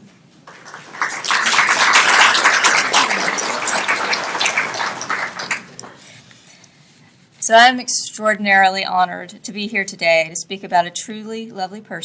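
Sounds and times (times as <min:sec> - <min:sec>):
audience applauding: 0:00.5 - 0:06.1.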